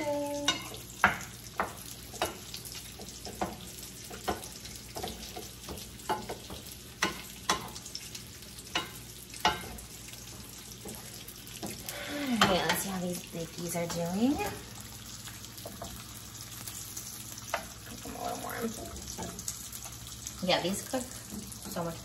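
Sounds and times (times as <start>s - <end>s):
eggs frying: 0.0s - 22.0s.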